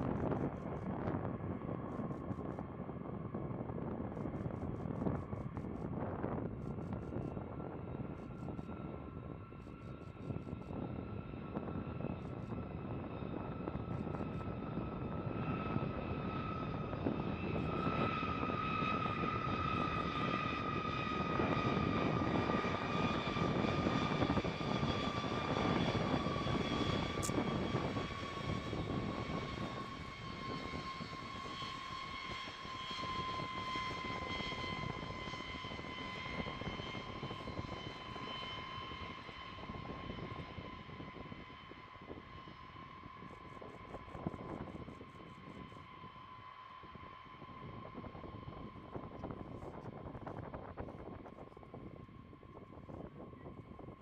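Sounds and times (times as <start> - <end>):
high jet whine: 0.0 - 53.3
jet engines roaring: 10.8 - 42.2.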